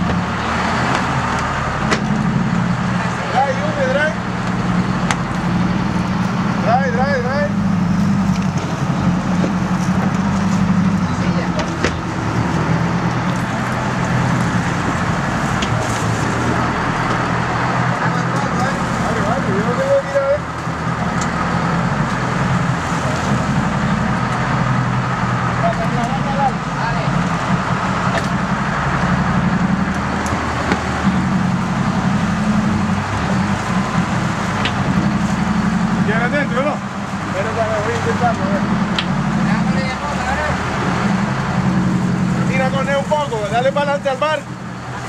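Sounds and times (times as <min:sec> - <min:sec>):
boat engine droning: 0:00.0 - 0:45.0
rushing water: 0:00.0 - 0:45.0
wind: 0:00.0 - 0:45.0
wind and water rushing: 0:07.5 - 0:25.7.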